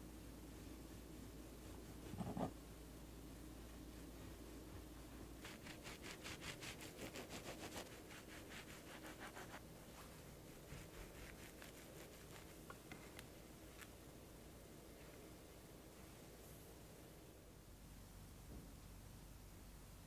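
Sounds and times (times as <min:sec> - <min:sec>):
knife sawing through bread crust: 0:05.4 - 0:09.6, 0:10.5 - 0:12.5.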